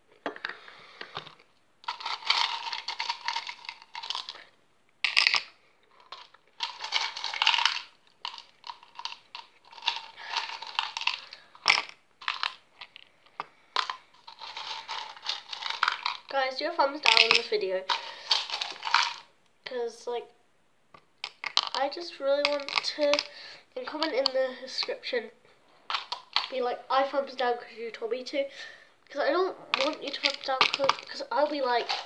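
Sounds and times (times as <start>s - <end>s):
hard sweets crunching in cup: 1.0s - 16.3s, 17.0s - 19.3s, 21.2s - 21.8s, 22.4s - 24.4s, 25.7s - 26.6s, 29.6s - 32.0s.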